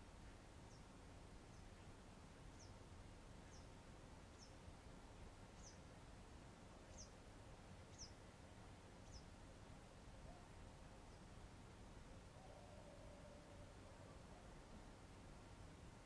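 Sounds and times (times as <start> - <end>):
background hiss: 0.0 - 16.0
small bird chirping: 7.9 - 8.2.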